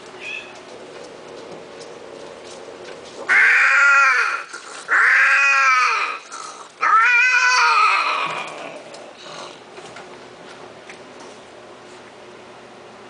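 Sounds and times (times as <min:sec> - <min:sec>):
cat yowling: 0:03.3 - 0:06.2, 0:06.8 - 0:08.7.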